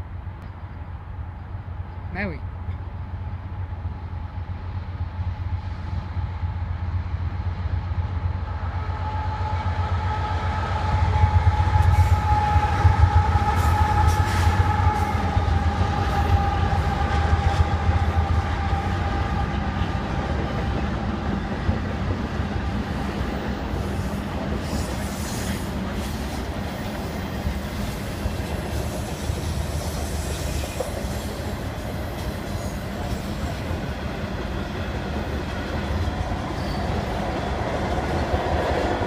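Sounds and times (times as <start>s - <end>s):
freight train passing: 0.0s - 39.0s
train horn chord: 8.8s - 20.0s.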